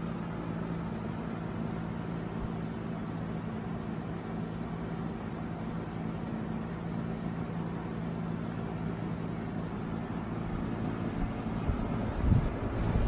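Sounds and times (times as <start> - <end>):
box fan running: 0.0 - 13.0
airflow buffeting microphone: 10.2 - 13.0.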